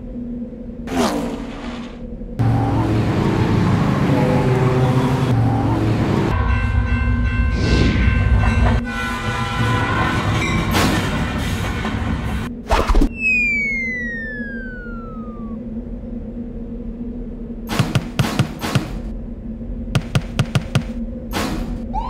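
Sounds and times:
cartoon train rumbling: 0:00.0 - 0:22.0
train horn held tones: 0:08.8 - 0:12.5.

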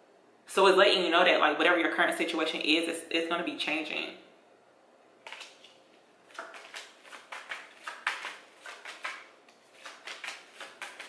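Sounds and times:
cards being shuffled: 0:05.2 - 0:11.0.

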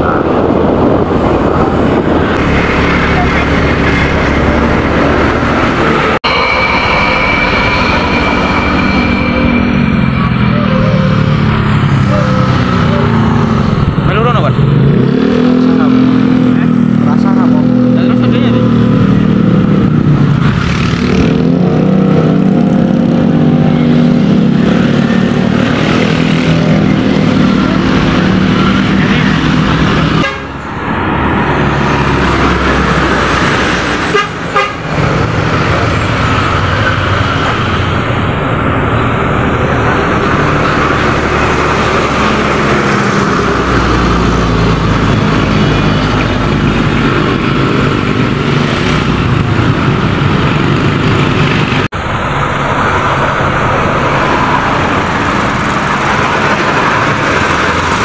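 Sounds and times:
buses driving past: 0:00.0 - 0:58.0
motorcycles in traffic: 0:00.0 - 0:58.0
vehicle horn held tones: 0:30.2 - 0:30.6, 0:34.1 - 0:34.8.

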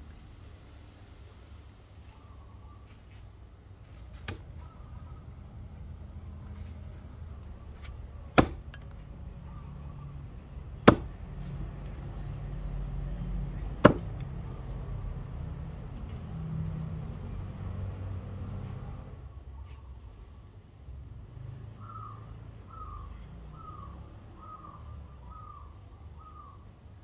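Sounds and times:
steady low rumble: 0:00.0 - 0:21.3
axe chopping wooden stump: 0:04.2 - 0:04.5, 0:07.8 - 0:08.9, 0:10.8 - 0:11.2, 0:13.8 - 0:14.2.

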